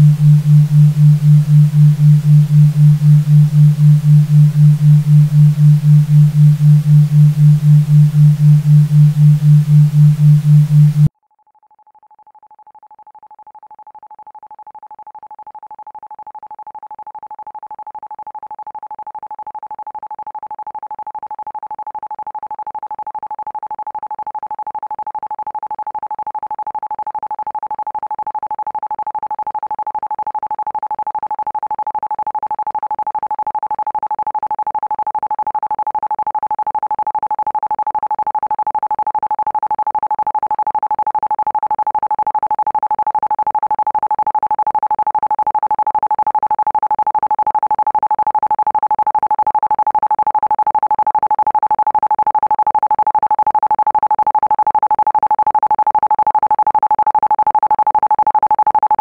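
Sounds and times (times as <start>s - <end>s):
pulsed pure tone: 0.0s - 11.1s.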